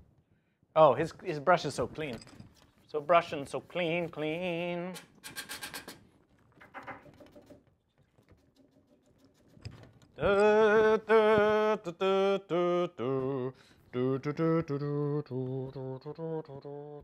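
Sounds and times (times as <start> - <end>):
man humming: 10.2 - 17.0.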